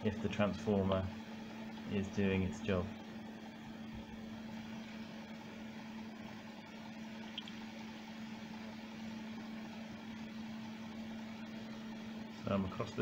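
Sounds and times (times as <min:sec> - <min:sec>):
welder cooling fan humming: 0:00.0 - 0:13.0.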